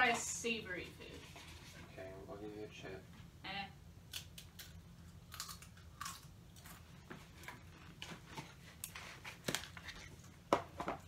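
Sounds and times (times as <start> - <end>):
person crunching a chip: 4.1 - 7.7.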